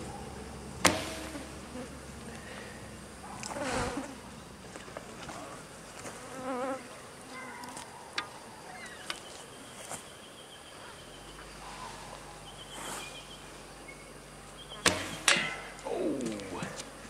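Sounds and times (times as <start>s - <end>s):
insect buzzing: 0.0s - 4.4s, 5.9s - 7.8s, 12.5s - 17.0s.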